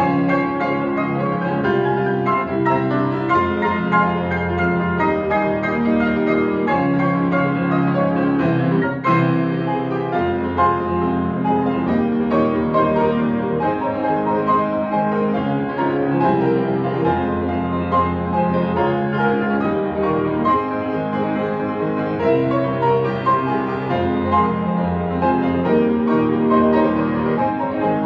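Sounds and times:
grand piano duet: 0.0 - 28.0.

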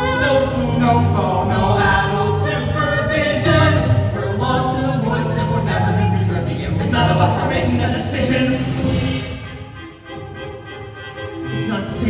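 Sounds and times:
voices singing together: 0.0 - 9.4
band accompaniment: 0.0 - 12.0.

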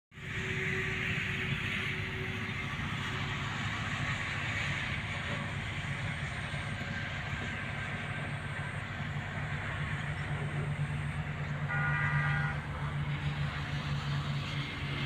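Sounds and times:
engine running: 0.1 - 15.0
short tone: 11.7 - 12.6.

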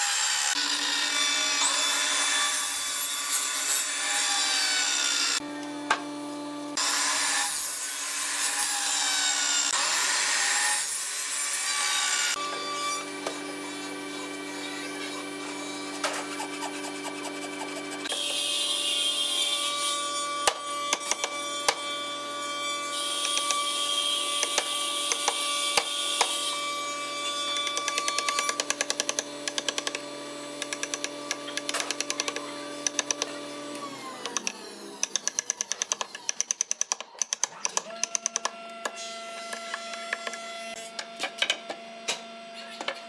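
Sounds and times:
shop machine humming: 27.6 - 36.2.

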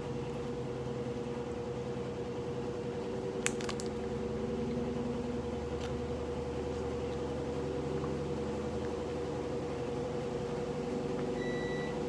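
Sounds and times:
low mechanical hum: 0.0 - 12.0
candy wrapper clicks: 3.4 - 4.0.

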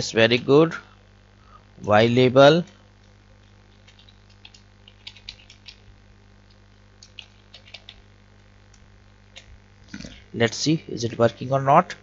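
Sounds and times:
steady low hum: 0.0 - 12.0
computer keyboard typing: 3.4 - 5.9, 6.5 - 8.1.

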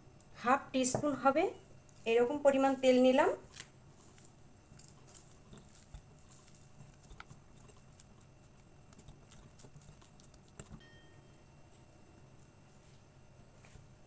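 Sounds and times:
hand kneading dough: 1.9 - 10.8.

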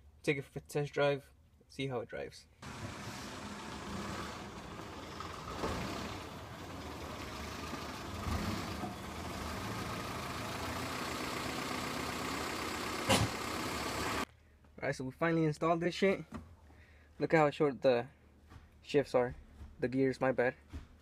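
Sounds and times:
car engine idling: 2.6 - 14.2.

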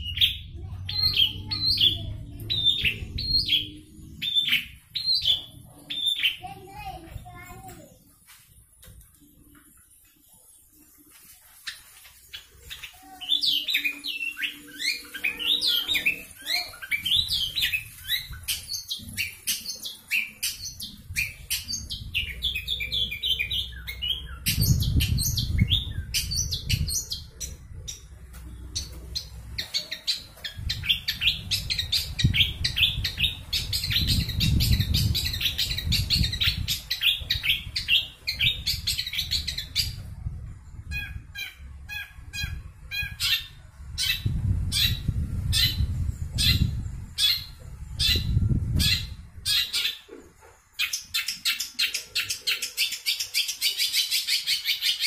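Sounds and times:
bird singing rapid chirps: 0.0 - 11.0, 11.6 - 40.1.

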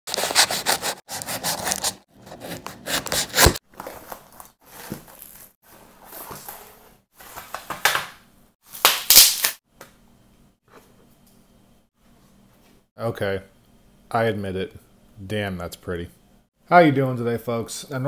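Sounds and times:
knife slicing cardboard tape: 0.1 - 3.6.

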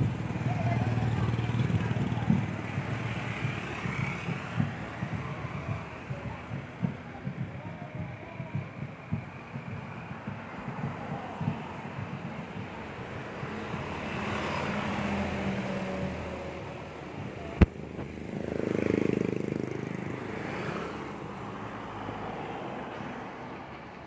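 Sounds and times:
road traffic: 0.0 - 24.0
vehicle passing close by: 13.0 - 22.9.

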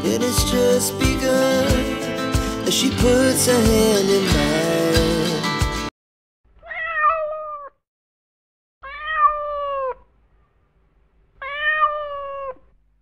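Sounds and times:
kitten meowing: 6.6 - 7.8, 8.8 - 10.1, 11.4 - 12.7.

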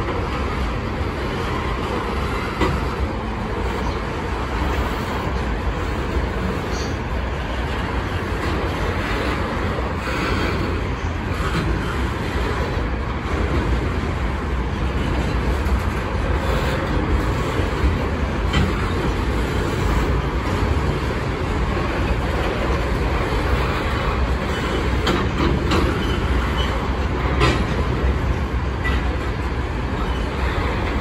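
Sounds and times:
steel wheels rumbling on rail: 0.0 - 31.0.

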